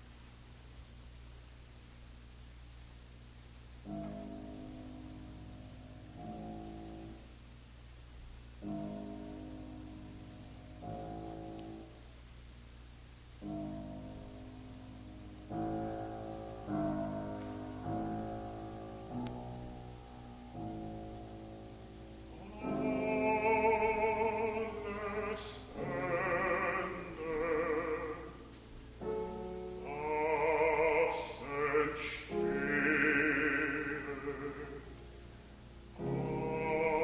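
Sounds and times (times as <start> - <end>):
solo piano chords: 3.8 - 7.4, 8.2 - 12.1, 13.3 - 37.0
bass voice singing: 22.3 - 28.5, 29.8 - 34.9, 36.0 - 37.0.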